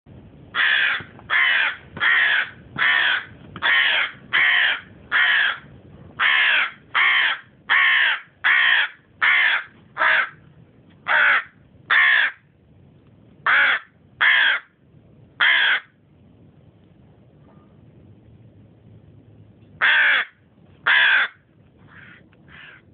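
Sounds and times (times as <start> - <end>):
crow cawing: 0.6 - 10.4, 11.0 - 12.4, 13.4 - 14.8, 15.4 - 16.0, 19.8 - 22.9.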